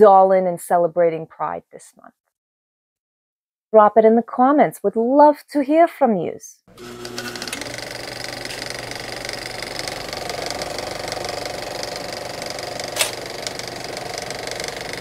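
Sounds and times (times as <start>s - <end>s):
fast mechanical rattle: 6.7s - 15.0s
sharp click: 12.9s - 13.3s.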